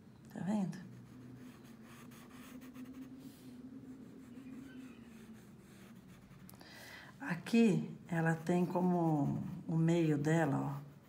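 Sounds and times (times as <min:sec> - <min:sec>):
steady low hum: 0:00.0 - 0:11.0
pencil scratching on paper: 0:00.8 - 0:06.5, 0:08.2 - 0:11.0.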